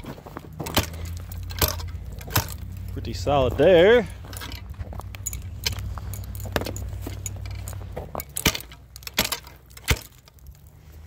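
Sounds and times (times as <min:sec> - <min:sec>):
light clinks and crunches: 0:00.0 - 0:11.0
steel bar chopping ice: 0:00.5 - 0:02.6, 0:08.2 - 0:10.3.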